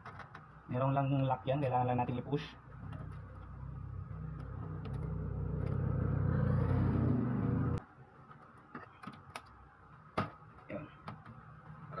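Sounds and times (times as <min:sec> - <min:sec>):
engine humming: 0:02.9 - 0:07.8.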